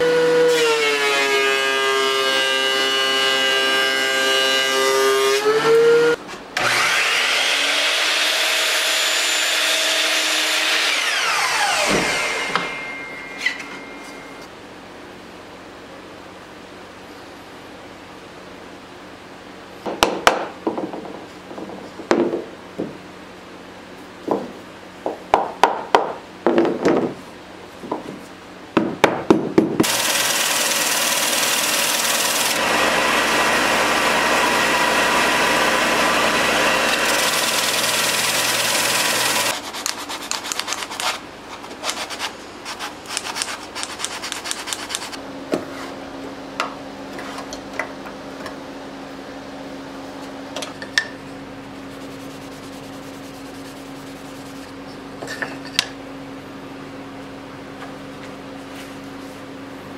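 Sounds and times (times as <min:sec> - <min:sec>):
belt sander sanding wood: 0:29.8 - 0:45.2, 0:51.8 - 0:54.8
rag rubbing on wood: 0:51.8 - 0:54.8.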